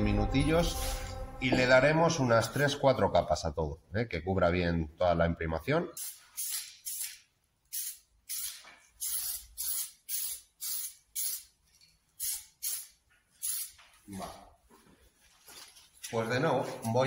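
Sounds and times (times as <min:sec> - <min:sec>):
aerosol spray can hissing: 0:06.0 - 0:11.5, 0:12.2 - 0:13.8.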